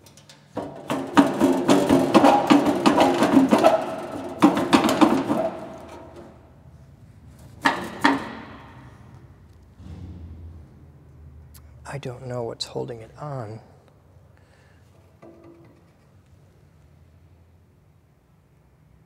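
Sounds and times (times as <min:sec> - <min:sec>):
metal cabinet rattling and clanking: 0:00.0 - 0:06.4, 0:07.4 - 0:09.0.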